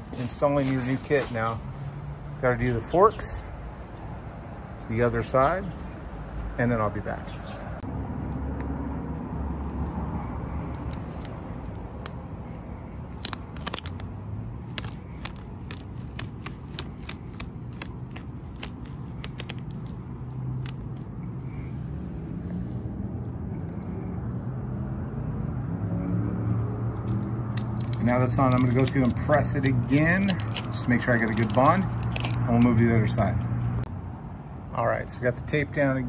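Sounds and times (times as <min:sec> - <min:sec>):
crackling plastic film: 0:13.1 - 0:20.0, 0:27.8 - 0:32.6.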